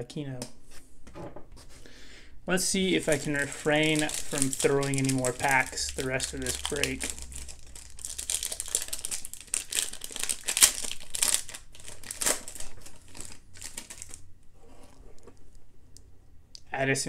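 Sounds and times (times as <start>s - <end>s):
foil wrapper tearing and crinkling: 3.0s - 14.2s.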